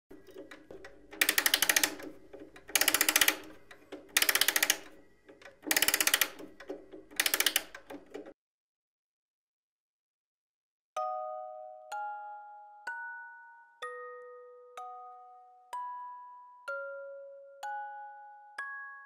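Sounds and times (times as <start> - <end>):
rapid mechanical clattering: 0.1 - 8.4.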